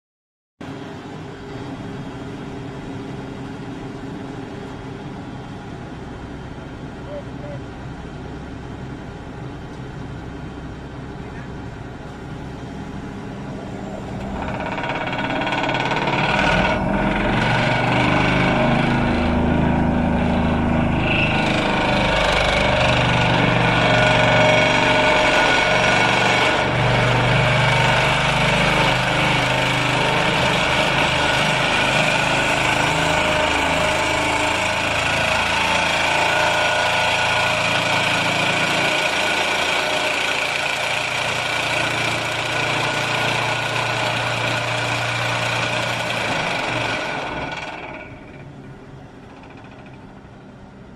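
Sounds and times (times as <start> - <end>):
diesel engine under load: 0.6 - 50.9
high mechanical whine: 0.6 - 50.9
pile hammer mechanical drone: 13.1 - 50.7.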